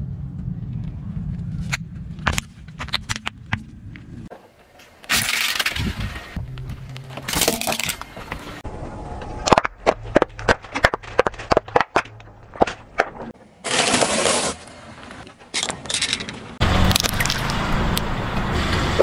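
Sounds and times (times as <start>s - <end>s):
tyre crunching plastic toy: 5.0s - 6.0s, 9.4s - 14.7s.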